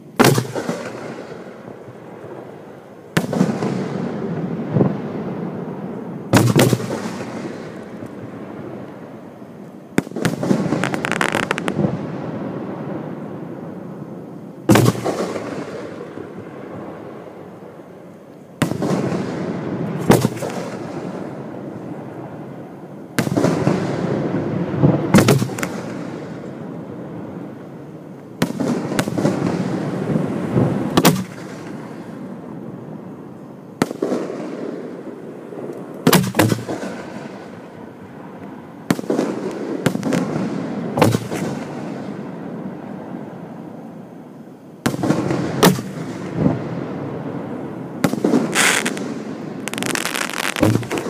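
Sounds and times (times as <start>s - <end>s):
firework mortar launch thump: 48.0s - 51.0s.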